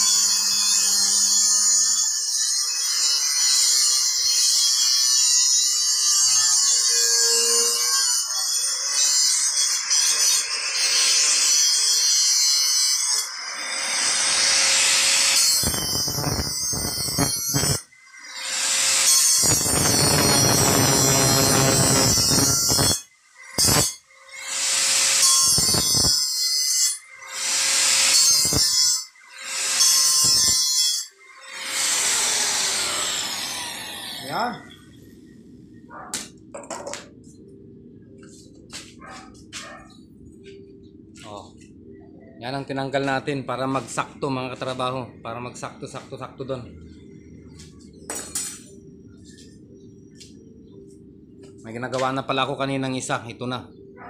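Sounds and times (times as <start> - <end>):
angle grinder grinding steel pipe: 0.0 - 35.0.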